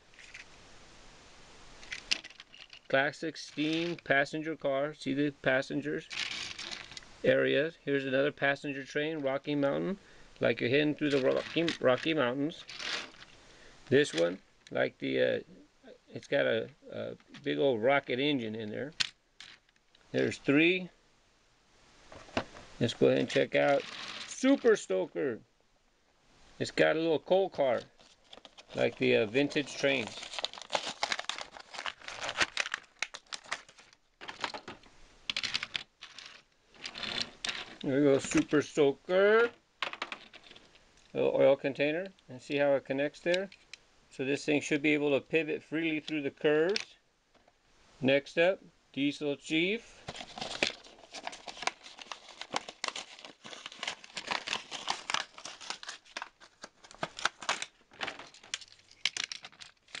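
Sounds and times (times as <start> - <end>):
plastic blister pack tearing: 12.6 - 13.4, 27.8 - 34.7, 50.1 - 60.0.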